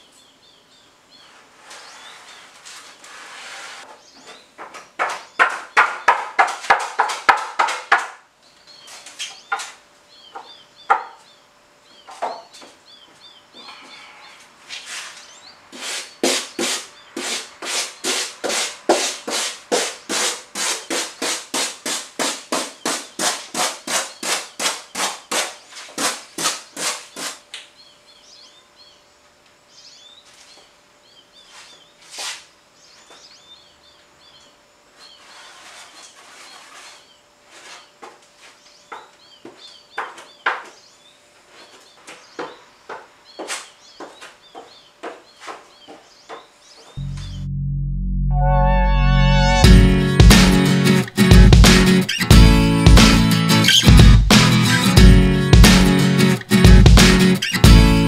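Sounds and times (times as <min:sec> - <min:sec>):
birds chirping faintly: 0:00.0 - 0:47.5
hand saw rasping through foam: 0:15.8 - 0:27.4, 0:35.2 - 0:37.9.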